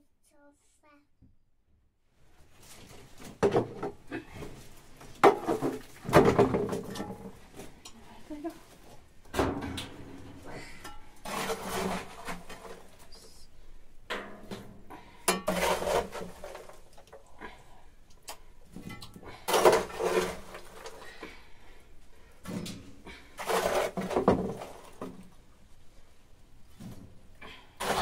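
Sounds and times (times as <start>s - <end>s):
kitchenware clattering: 15.2s - 16.8s.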